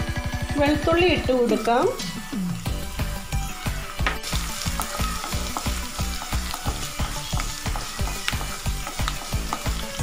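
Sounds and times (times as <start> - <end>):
garlic sizzling in hot oil: 0.9 - 10.0
wooden spatula stirring in pan: 4.1 - 10.0.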